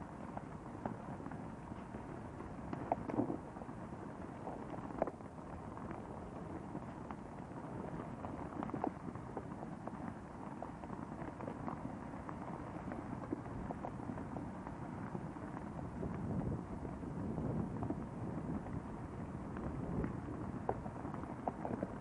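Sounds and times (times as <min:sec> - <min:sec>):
cracks and pops: 0:02.7 - 0:03.8, 0:04.4 - 0:16.3, 0:19.5 - 0:22.0.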